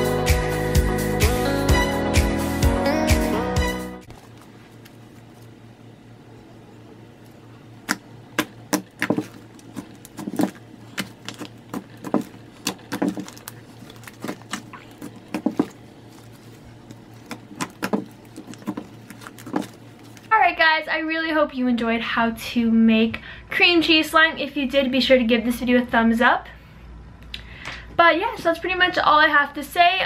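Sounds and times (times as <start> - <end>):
slime clicking and popping: 7.8 - 20.3.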